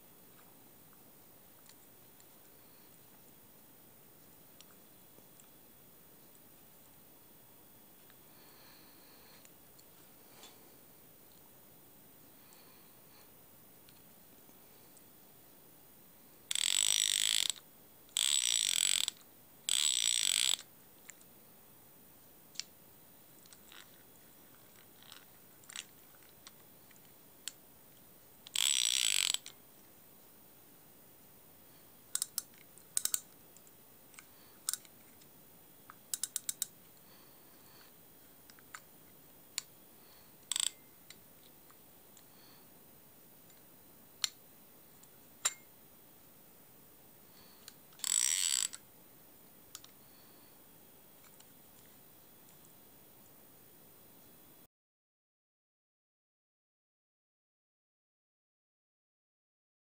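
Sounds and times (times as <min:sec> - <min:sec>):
fishing reel clicks: 0:16.5 - 0:17.6, 0:18.2 - 0:20.7, 0:28.5 - 0:29.5, 0:32.2 - 0:33.2, 0:36.1 - 0:36.7, 0:40.5 - 0:40.8, 0:48.0 - 0:48.8
fishing reel ratcheting buzz: 0:16.5 - 0:17.6, 0:18.2 - 0:20.6, 0:28.5 - 0:29.5, 0:40.5 - 0:40.8, 0:48.0 - 0:48.8.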